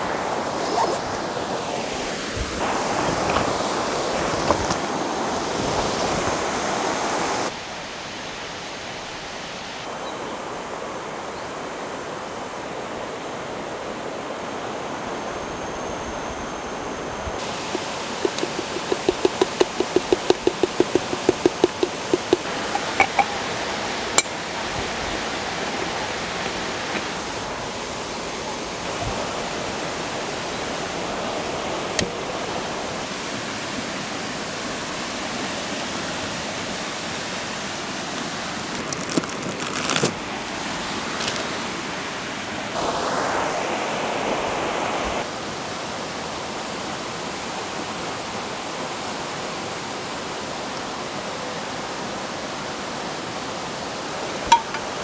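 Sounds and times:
sharp clicks and knocks: 17.7s - 23.4s, 54.5s - 54.9s.

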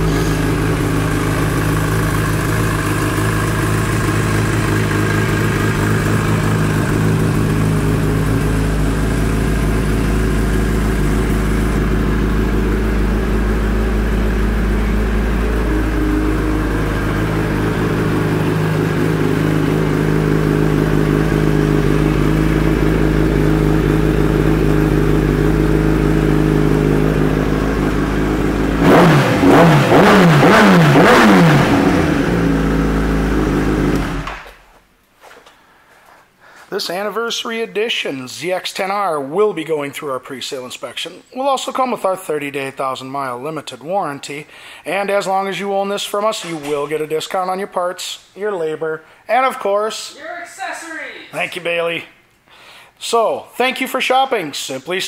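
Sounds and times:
motorcycle engine idling: 0.0s - 34.5s
motorcycle engine revving: 0.0s - 34.5s.

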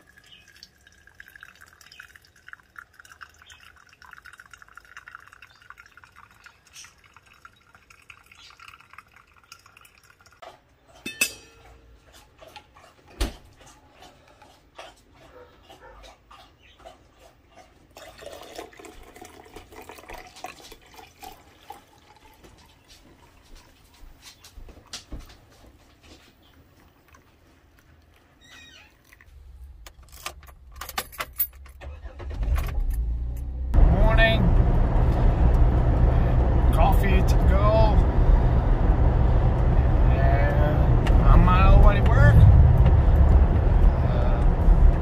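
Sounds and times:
coffee poured into steel tumbler: 0.0s - 10.4s, 18.0s - 22.4s
hot water poured onto coffee: 0.0s - 10.4s, 18.0s - 22.7s.

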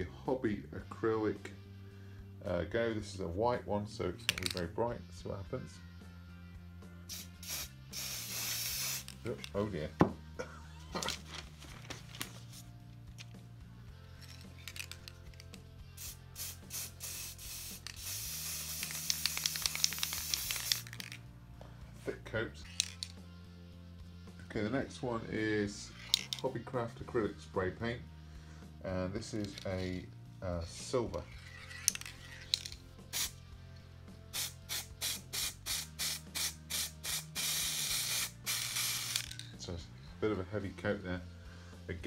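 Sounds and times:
spray paint can hissing: 7.1s - 9.4s, 16.0s - 21.2s, 22.7s - 23.1s, 31.8s - 33.4s, 34.3s - 39.4s.

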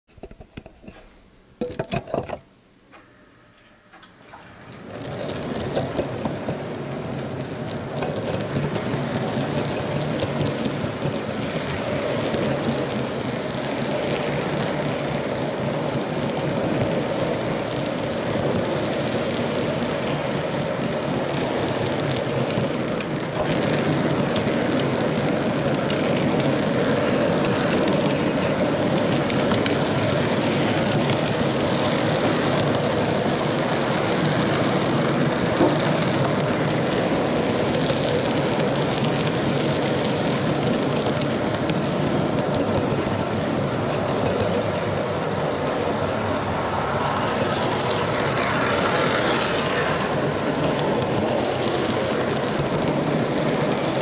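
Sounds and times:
model train wheels clattering: 0.1s - 54.0s.

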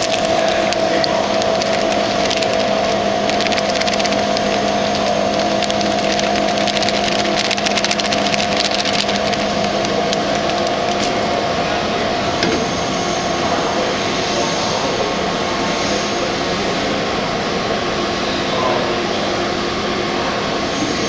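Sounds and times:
grinder motor running: 0.0s - 11.5s.

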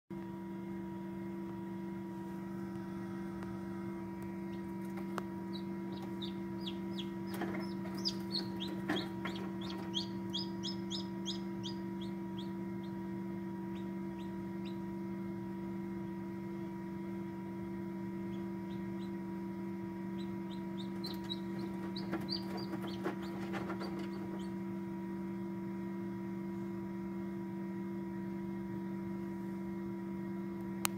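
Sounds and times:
incubator humming: 0.1s - 30.9s
chick peeping: 4.4s - 15.0s, 20.1s - 24.6s.

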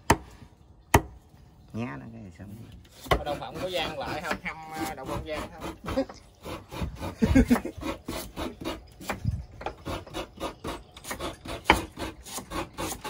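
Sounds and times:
knife chopping on wood: 0.0s - 0.3s, 0.9s - 1.2s, 7.5s - 13.0s.

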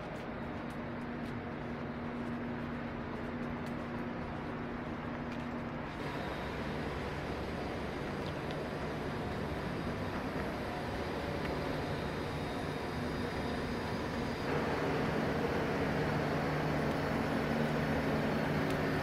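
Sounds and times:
idling buses: 0.0s - 19.0s
distant traffic: 5.9s - 19.0s.

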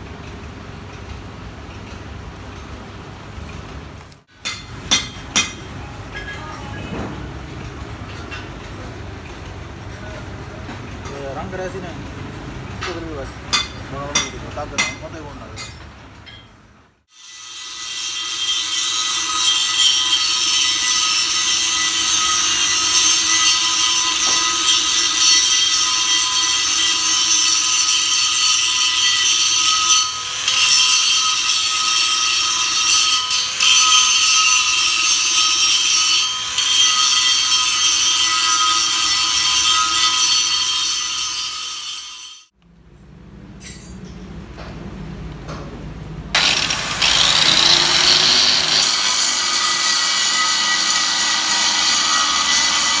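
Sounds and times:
angle grinder grinding metal: 17.1s - 42.5s, 46.4s - 53.0s.

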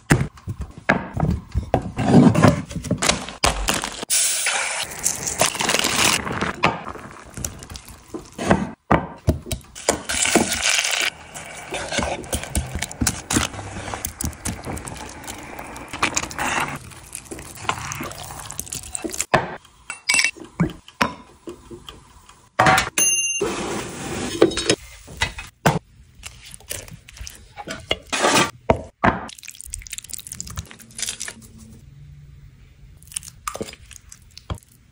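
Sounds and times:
wet stirring of pasta: 9.8s - 19.3s, 33.0s - 34.9s
utensils clinking on pots: 19.9s - 20.4s.

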